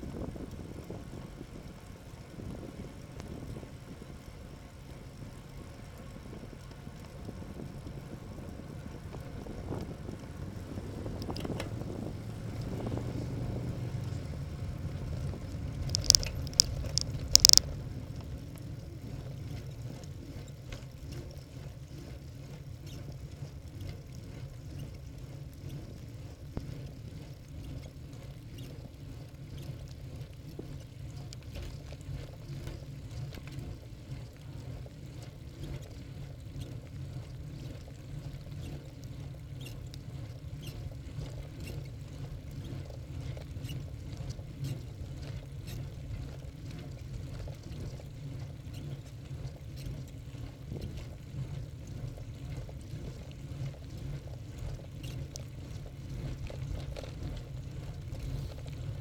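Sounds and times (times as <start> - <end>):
wind buffeting microphone: 0.0 - 20.5
small rattles and clicks: 0.0 - 59.0
tyre noise on asphalt: 0.0 - 59.0.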